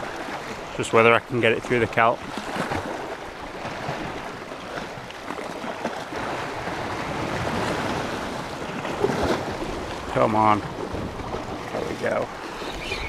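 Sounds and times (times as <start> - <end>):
sea washing against rocks: 0.0 - 13.0
wind on microphone: 6.4 - 13.0.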